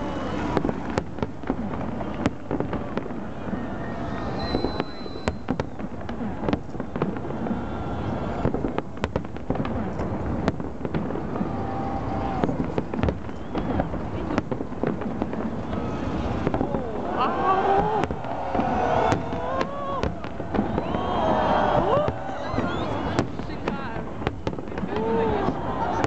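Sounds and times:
fireworks bangs: 0.0 - 26.0
people's voices: 13.6 - 26.0.

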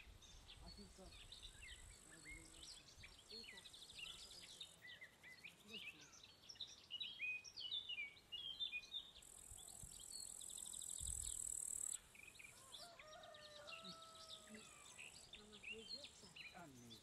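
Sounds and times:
small birds chirping: 0.0 - 17.0
insect buzzing: 9.2 - 12.1.

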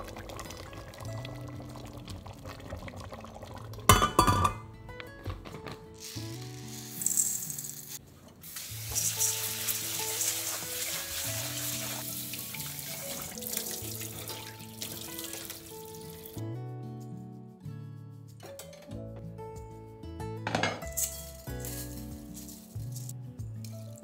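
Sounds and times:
background music: 0.0 - 24.0
grains poured into steel bowl: 6.0 - 8.0, 8.6 - 16.2, 21.0 - 23.1
tap water running into bowl: 8.8 - 16.4.

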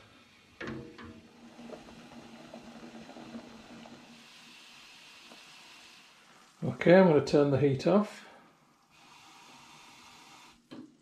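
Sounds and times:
liquid simmering in a pan: 0.0 - 7.2, 8.1 - 11.0.

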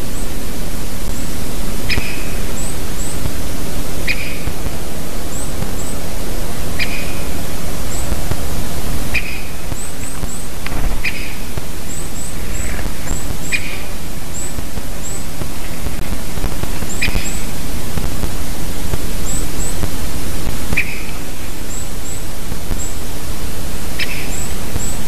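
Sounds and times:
steady loud hiss: 0.0 - 25.0
songbirds high call notes: 1.1 - 4.6, 5.2 - 8.2, 9.0 - 15.8, 16.8 - 17.6, 20.7 - 23.0, 23.9 - 25.0.

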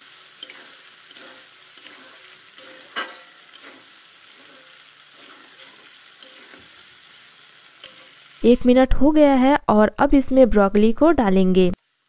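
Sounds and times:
vegetables sizzling in oil: 0.0 - 8.7, 11.8 - 12.0
metal spatula scraping pan: 0.4 - 6.8, 7.8 - 8.2.

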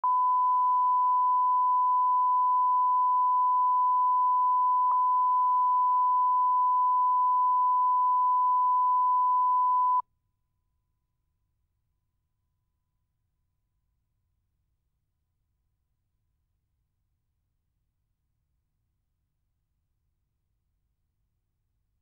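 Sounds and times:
sine test tone: 0.0 - 10.0.

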